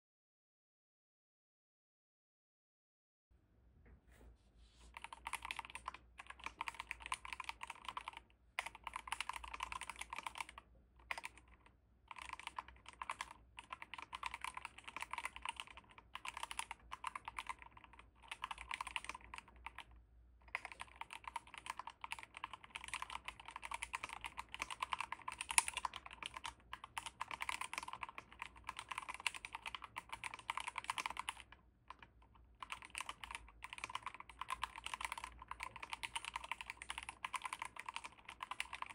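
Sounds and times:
mechanical keyboard typing: 0:04.9 - 0:38.9.

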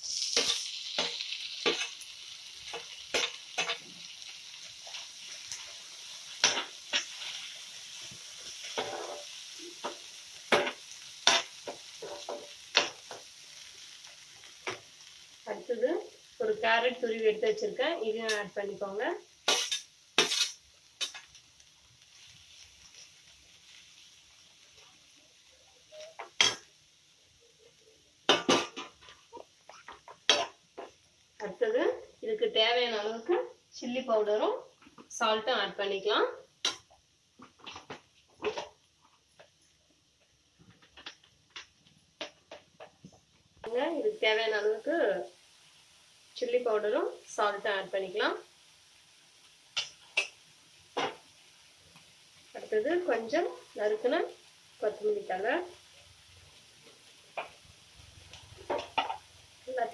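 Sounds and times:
metal spoon scraping a pan: 0:00.0 - 0:04.0, 0:06.3 - 0:13.2, 0:19.5 - 0:21.4
onions and tomatoes sizzling: 0:00.0 - 0:59.9.

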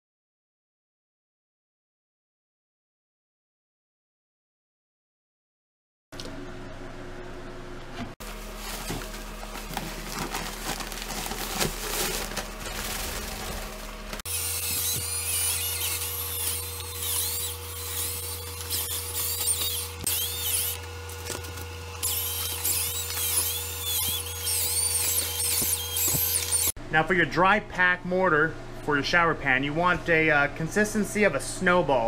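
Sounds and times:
drill motor hum: 0:08.2 - 0:26.8
paddle grinding mortar: 0:08.2 - 0:26.8.

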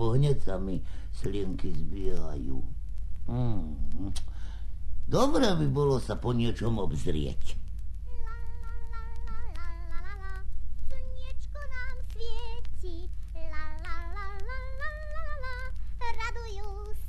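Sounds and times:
steady low hum: 0:00.0 - 0:17.0
girl singing: 0:08.0 - 0:17.0.

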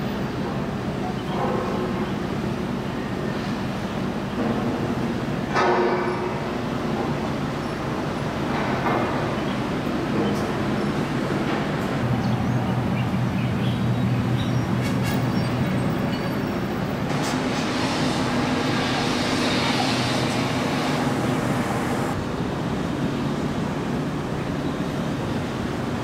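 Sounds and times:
outdoor noise: 0:00.0 - 0:26.0
low engine rumble: 0:15.7 - 0:23.6.

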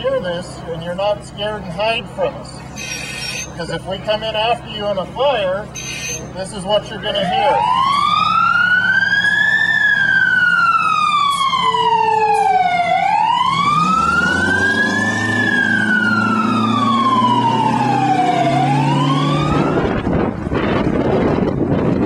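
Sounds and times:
fire engine siren wailing: 0:05.7 - 0:21.4
truck engine revving: 0:07.4 - 0:22.0.

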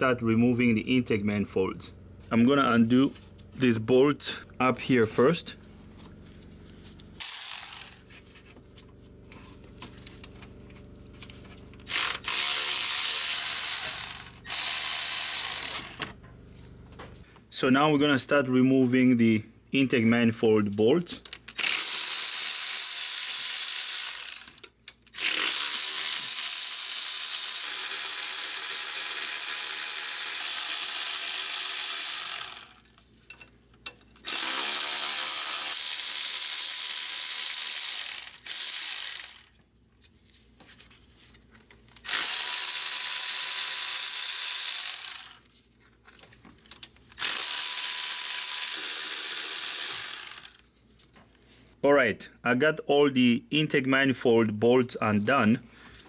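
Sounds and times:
electric ratchet whirring: 0:07.2 - 0:08.1, 0:11.2 - 0:16.2, 0:21.2 - 0:33.0, 0:34.2 - 0:39.6, 0:42.0 - 0:45.5, 0:46.7 - 0:50.6.

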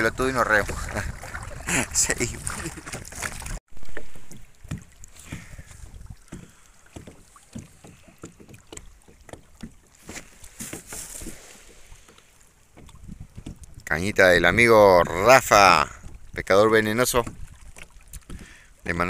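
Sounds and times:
wind gust on microphone: 0:00.0 - 0:03.6, 0:12.9 - 0:16.5
water lapping against kayak: 0:00.0 - 0:19.0
light knocks and taps: 0:06.2 - 0:11.0, 0:12.0 - 0:13.9.

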